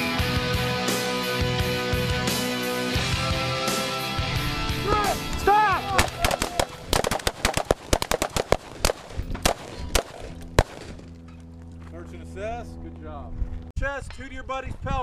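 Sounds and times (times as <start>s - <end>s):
rifle fire cracks: 6.0s - 11.1s.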